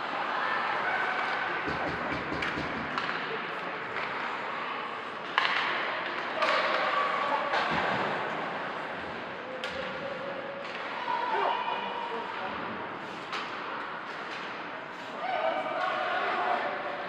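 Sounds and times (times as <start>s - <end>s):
hockey stick hitting puck: 1.2s - 4.4s, 5.2s - 8.6s.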